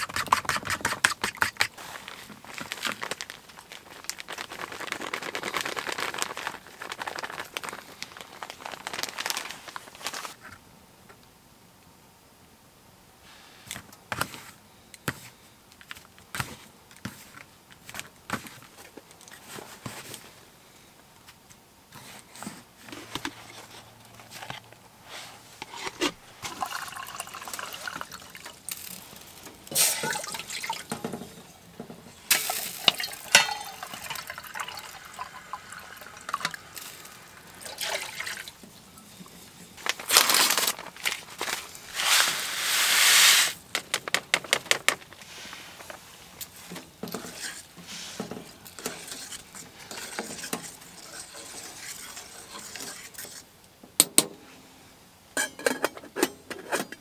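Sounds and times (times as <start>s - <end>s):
metal pots and utensils clinking: 25.6s - 39.6s, 55.4s - 57.0s
liquid pouring into cookware: 26.4s - 29.0s, 29.7s - 31.1s, 32.3s - 38.6s.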